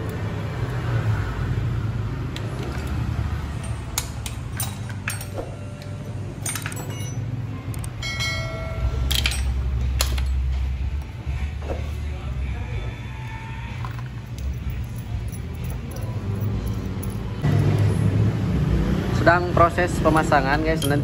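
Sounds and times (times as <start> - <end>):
metal tools clinking: 2.4 - 11.1, 13.7 - 17.5, 20.2 - 21.0
metallic ring: 2.6 - 10.7.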